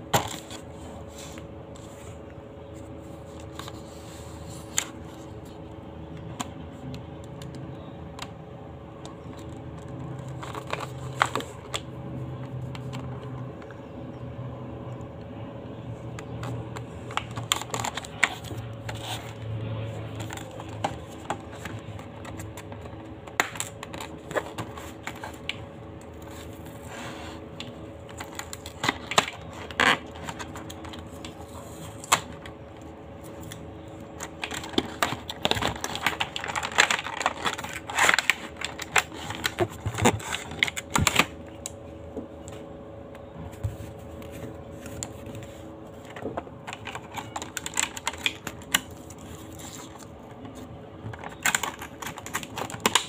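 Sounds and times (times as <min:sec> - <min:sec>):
faint steady hum: 0:00.0 - 0:53.0
packaging being opened by hand: 0:09.0 - 0:13.8, 0:16.2 - 0:27.0, 0:27.6 - 0:41.8, 0:43.5 - 0:53.0.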